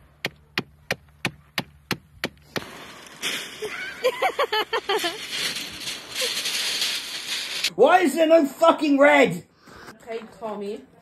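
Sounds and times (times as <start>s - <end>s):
pebbles crunching underfoot: 2.4s - 7.7s.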